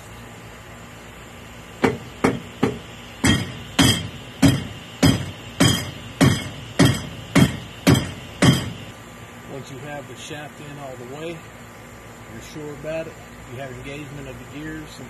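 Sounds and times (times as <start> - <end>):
hammer striking metal: 1.8 - 8.9.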